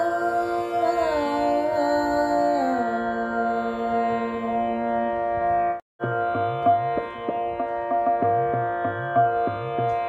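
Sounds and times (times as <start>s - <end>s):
plucked string instrument: 5.2s - 10.0s.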